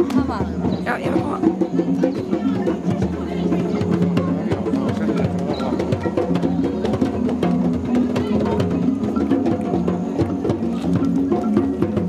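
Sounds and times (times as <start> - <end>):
wooden percussion clicking: 3.6 - 12.0.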